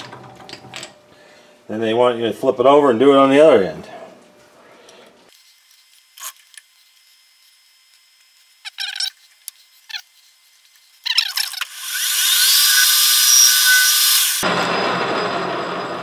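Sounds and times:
metal lathe whining: 0:11.3 - 0:16.0.

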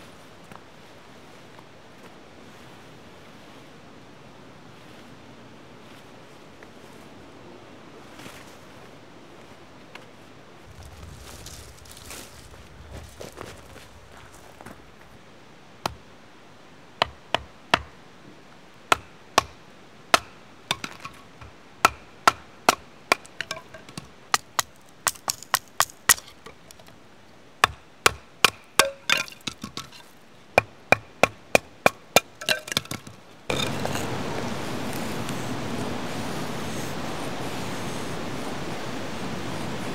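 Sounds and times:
steady hiss: 0:10.3 - 0:39.9.

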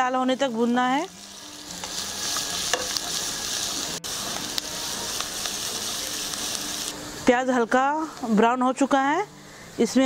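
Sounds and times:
vegetables sizzling in hot oil: 0:00.0 - 0:07.9.

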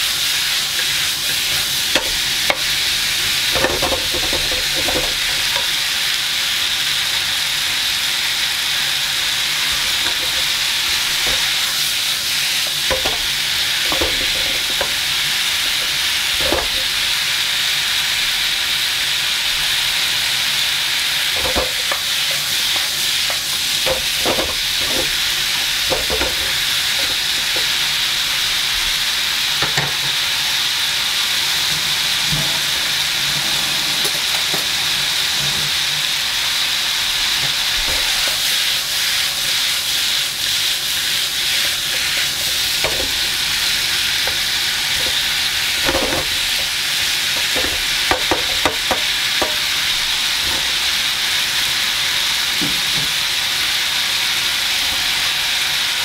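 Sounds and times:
vegetables sizzling in a frying pan: 0:00.0 - 0:56.0
wooden spatula scraping a pan: 0:09.6 - 0:17.0, 0:21.3 - 0:27.8, 0:37.4 - 0:50.9.

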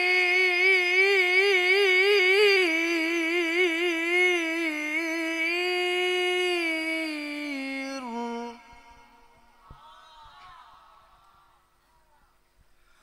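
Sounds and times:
young man reciting in long notes: 0:00.0 - 0:09.6.

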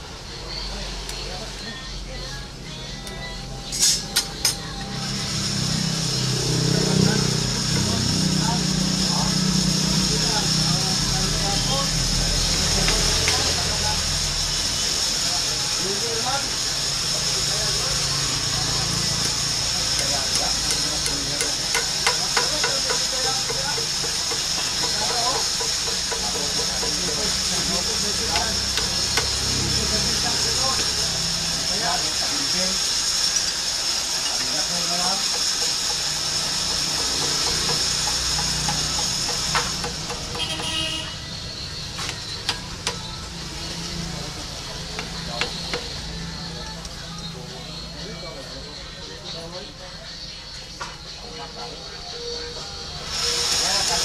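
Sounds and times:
hand tool tapping on handle: 0:20.0 - 0:27.3, 0:37.0 - 0:40.8.

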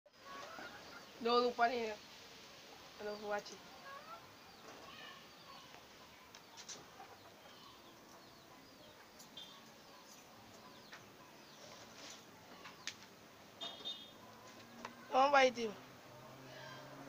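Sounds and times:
chicken clucks: 0:00.2 - 0:01.1, 0:05.5 - 0:12.9
faint bird chirps: 0:03.0 - 0:13.0, 0:13.6 - 0:15.2.

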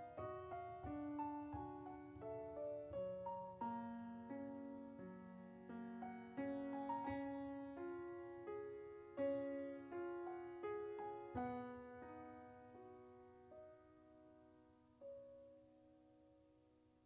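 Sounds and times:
slow piano tune: 0:00.0 - 0:17.0.

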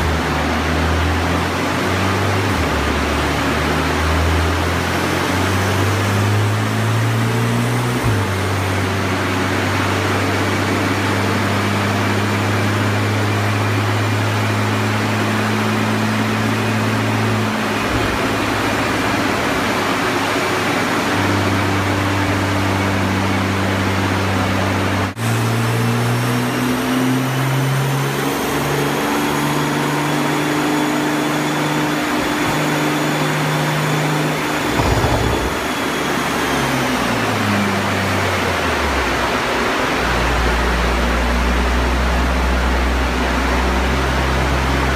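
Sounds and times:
car engine on dynamometer: 0:00.0 - 0:44.9
cooling fan air rush: 0:34.6 - 0:36.2.

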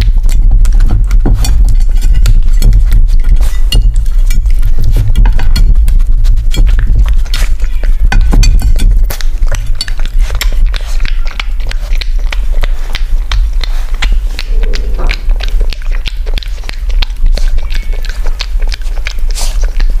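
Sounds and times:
puppy licking and chewing plate: 0:00.0 - 0:20.0
steady low hum: 0:00.0 - 0:20.0.

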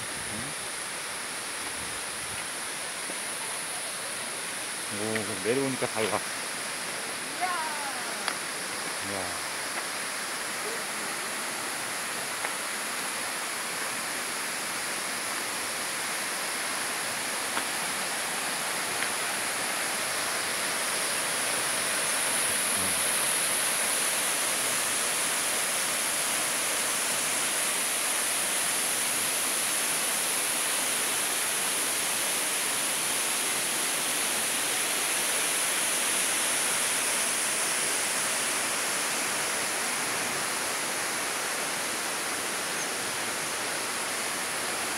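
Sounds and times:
waterfall rushing: 0:00.0 - 0:44.9.

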